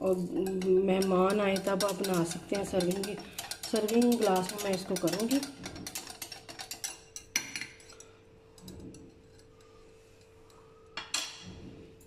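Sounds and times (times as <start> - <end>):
whisk clicking against glass bowl: 0.3 - 7.6.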